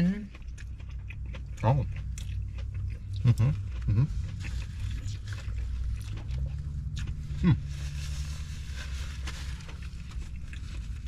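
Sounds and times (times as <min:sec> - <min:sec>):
sandwich chewing: 0:00.0 - 0:11.0
paper wrapper rustling: 0:07.6 - 0:11.0.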